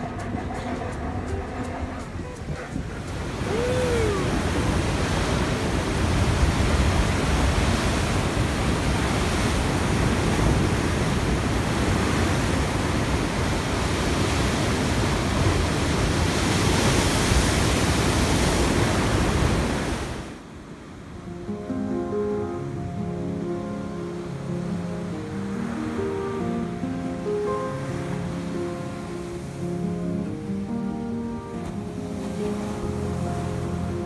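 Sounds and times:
waves crashing against seawall: 0:00.0 - 0:20.5.

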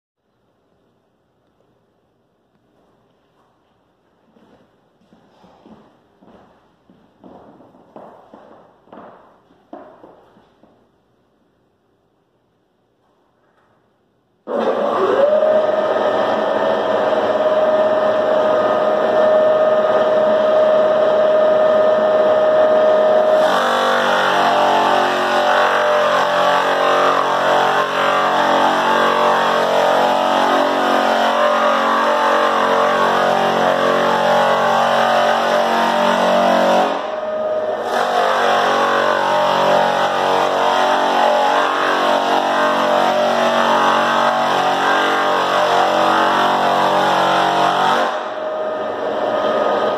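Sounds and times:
drum sanding wood floor: 0:02.7 - 0:10.9, 0:14.5 - 0:49.9
floor sander motor humming: 0:14.5 - 0:49.9.

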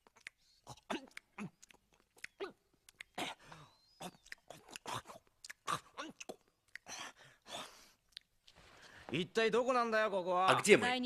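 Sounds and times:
person chewing food: 0:00.0 - 0:03.2, 0:04.0 - 0:07.0.

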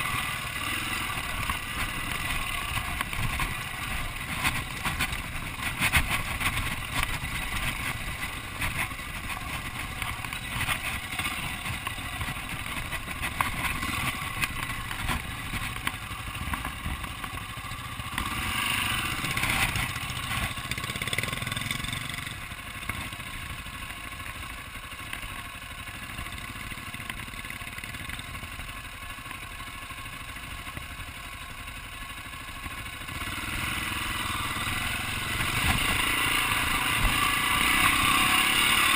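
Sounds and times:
dirt bike engine running: 0:00.0 - 0:38.9.

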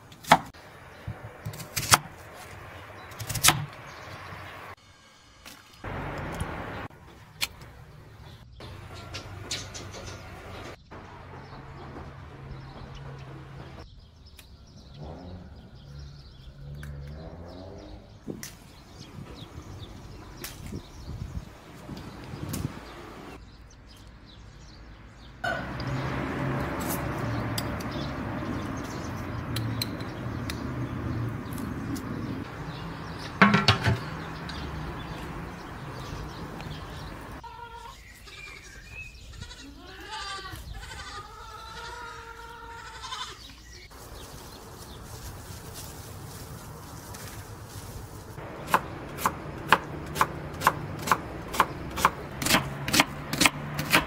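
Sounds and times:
goat or sheep bleating: 0:37.4 - 0:43.6
knife chopping on a board: 0:48.6 - 0:54.0.

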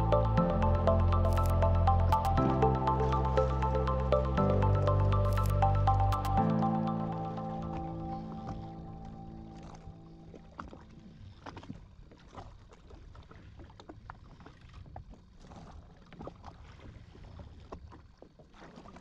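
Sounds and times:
faint low rumble: 0:00.0 - 0:18.2
waves lapping against hull: 0:07.0 - 0:19.0.

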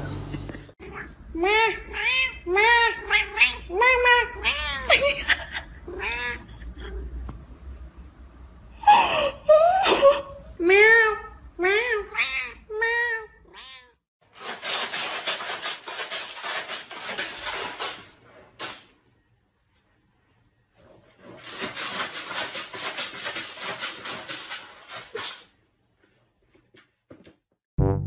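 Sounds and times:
cat meowing: 0:05.9 - 0:07.0
cat digging in pellet litter: 0:14.2 - 0:18.8, 0:21.0 - 0:25.5.

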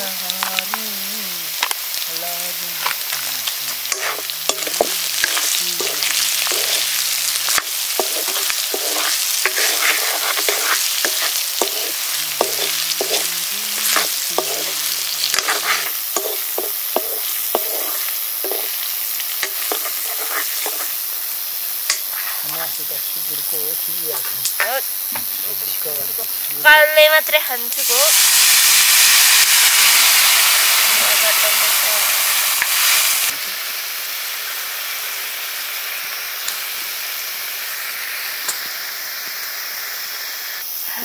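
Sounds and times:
curry sizzling in a pan: 0:00.0 - 0:41.0
utensil scraping a pan: 0:03.8 - 0:18.8, 0:19.4 - 0:20.9.

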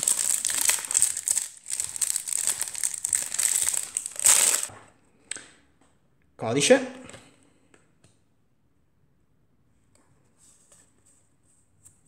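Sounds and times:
foil wrapper crinkling: 0:00.0 - 0:04.7.

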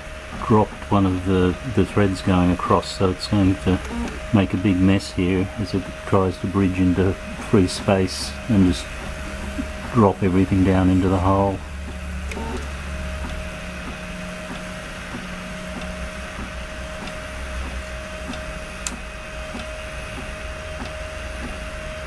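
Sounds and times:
three d printer motors whining: 0:00.0 - 0:22.0
sharp click: 0:18.3 - 0:19.7.

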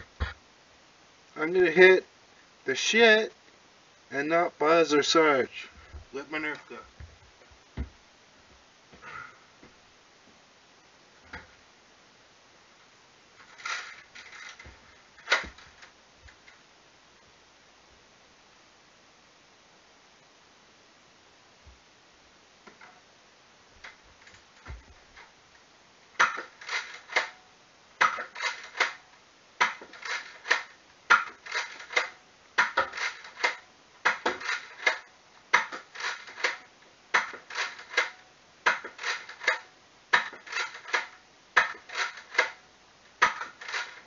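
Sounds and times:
toy blaster plastic clacks: 0:13.5 - 0:15.6, 0:26.2 - 0:27.4, 0:28.0 - 0:29.0, 0:29.6 - 0:39.6, 0:40.2 - 0:42.6, 0:43.2 - 0:44.0.

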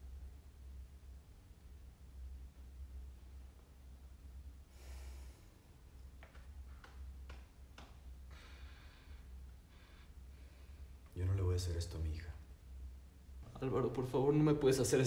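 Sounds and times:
low room hum: 0:00.0 - 0:15.0
faint breathing: 0:04.6 - 0:05.9, 0:08.2 - 0:11.1.

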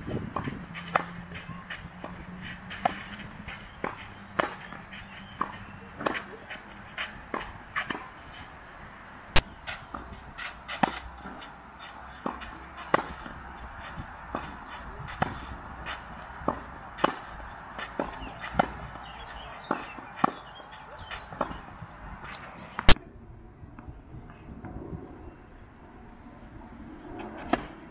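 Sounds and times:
tennis ball bouncing on court: 0:00.3 - 0:08.1, 0:09.4 - 0:11.5, 0:12.2 - 0:21.6
tennis ball struck by rackets: 0:00.3 - 0:08.2, 0:09.4 - 0:11.4, 0:12.1 - 0:21.6.

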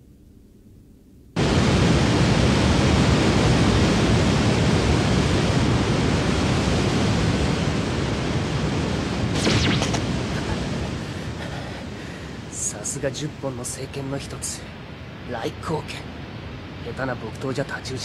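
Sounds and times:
rushing whirlwind: 0:09.3 - 0:12.5
brief whoosh: 0:09.4 - 0:10.1.

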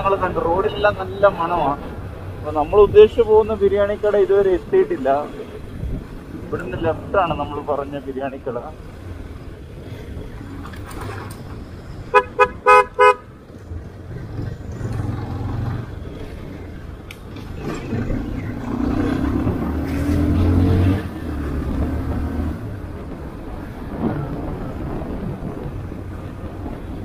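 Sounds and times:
truck engine rumble passing: 0:08.5 - 0:26.8
vehicle horn toots: 0:12.1 - 0:13.3.

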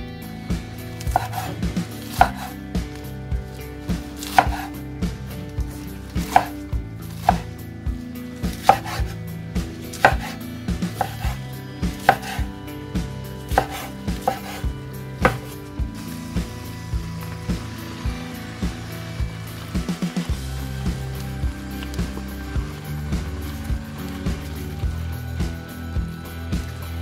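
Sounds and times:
knife chopping on wooden board: 0:01.0 - 0:02.6, 0:03.9 - 0:04.8, 0:05.6 - 0:07.5, 0:08.5 - 0:09.2, 0:09.9 - 0:12.5, 0:13.5 - 0:15.6.

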